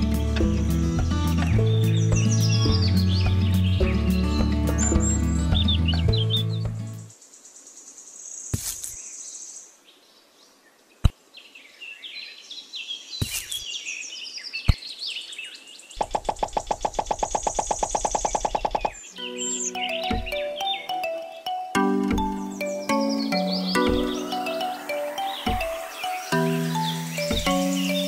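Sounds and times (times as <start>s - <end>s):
small birds chirping: 0.0s - 28.0s
rapid buzzing rattle: 16.0s - 18.9s.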